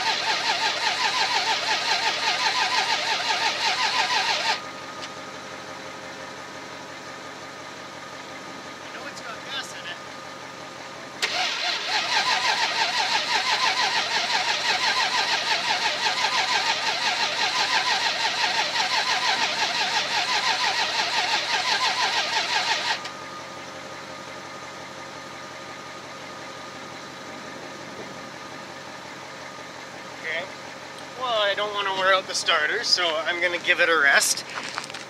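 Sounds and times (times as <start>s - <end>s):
starter cranking engine: 0.0s - 5.2s, 11.2s - 23.2s, 31.0s - 35.0s
truck engine idling: 0.0s - 35.0s.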